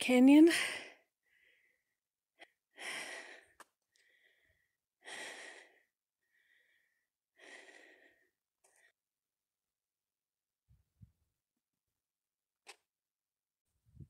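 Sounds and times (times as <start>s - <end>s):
person breathing hard: 0.6s - 9.0s.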